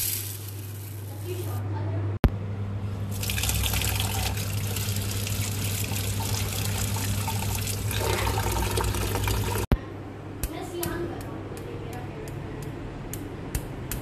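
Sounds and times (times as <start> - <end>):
lentils washed by hand: 0.0 - 1.6, 3.1 - 9.7
tap water running into steel bowl: 3.1 - 9.7.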